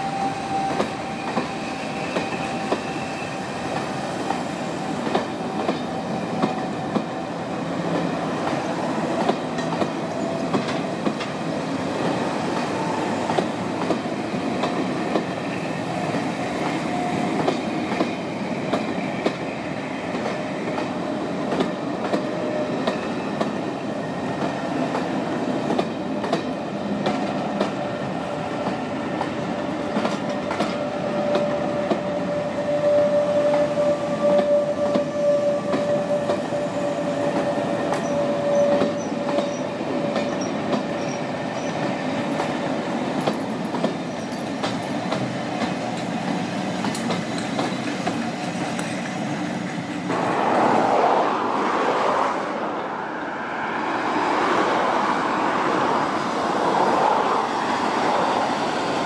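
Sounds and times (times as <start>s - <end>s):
train wheel squeal: 0.0s - 7.9s, 8.5s - 11.1s, 14.9s - 26.5s, 29.8s - 42.5s, 43.2s - 49.9s
train wheels clicking over rail joints: 0.5s - 7.2s, 7.8s - 23.6s, 24.3s - 27.8s, 28.5s - 32.1s, 33.5s - 50.2s.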